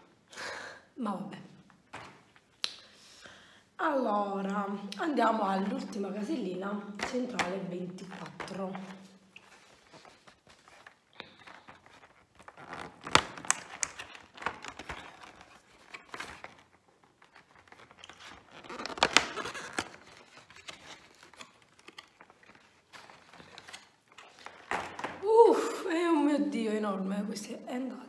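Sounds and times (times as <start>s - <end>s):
cardboard door torn open: 12.4s - 16.6s, 17.7s - 22.1s.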